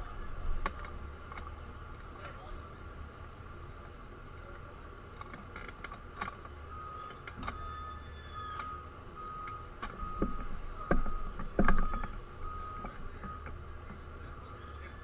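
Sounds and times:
low engine rumble: 0.0 - 15.0
repeating electronic beep: 6.7 - 13.5.

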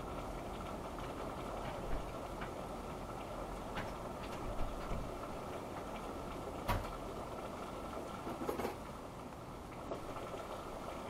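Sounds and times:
muffled rain on car: 0.0 - 11.0
sharp raindrop knocks: 3.7 - 7.1.

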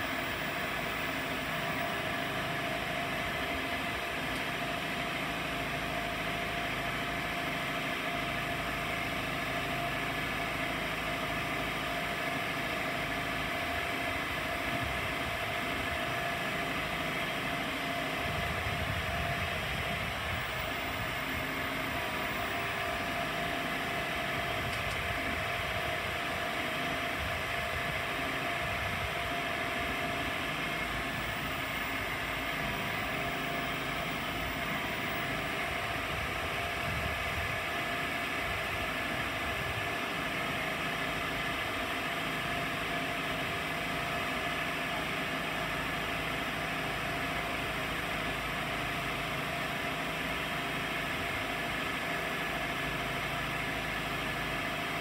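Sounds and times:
drilling machine humming: 0.0 - 46.3
hydraulic whine: 0.0 - 55.0.

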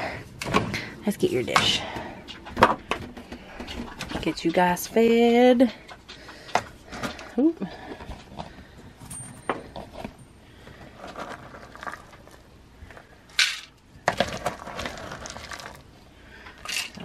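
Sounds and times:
kibble rattling in scoop: 10.9 - 12.5, 13.4 - 15.9.

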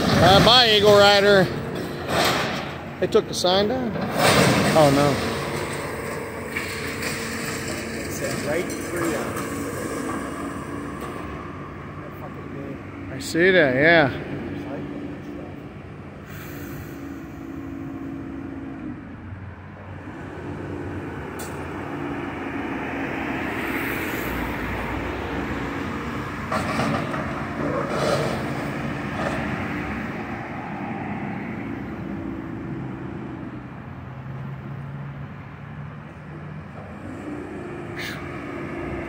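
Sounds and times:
heavy diesel machinery running: 0.0 - 33.8
passing road traffic: 0.0 - 39.0
clattering: 3.9 - 11.3.

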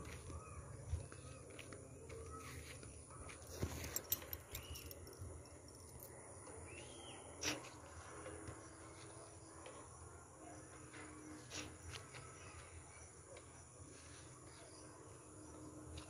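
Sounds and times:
faint bird chirps: 0.0 - 7.8
high insect drone: 1.9 - 16.0.

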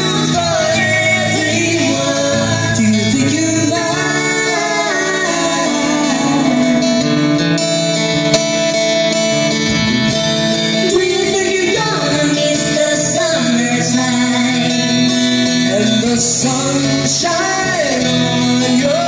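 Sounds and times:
woman singing: 0.0 - 6.8, 10.8 - 19.0
amplified electric guitar: 0.0 - 19.0.

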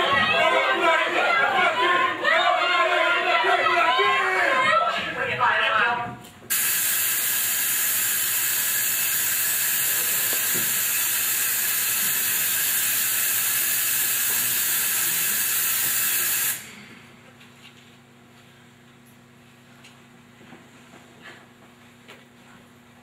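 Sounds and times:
loud steady hiss: 6.5 - 17.0.

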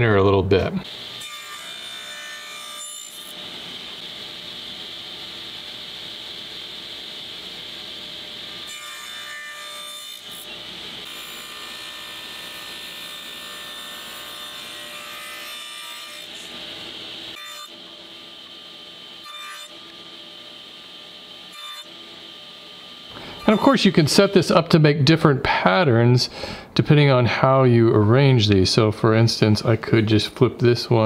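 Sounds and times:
table saw running: 0.8 - 24.8
saw blade cutting wood: 23.1 - 24.4.

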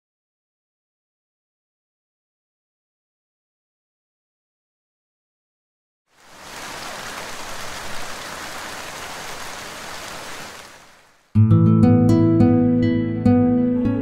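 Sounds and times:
heavy rainfall hiss: 6.1 - 11.3
plucked-string music: 11.4 - 14.0.

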